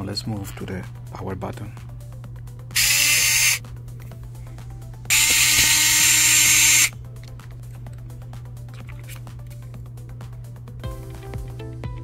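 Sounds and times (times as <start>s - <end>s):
electric screwdriver motor whine: 2.8s - 3.6s, 5.1s - 6.9s.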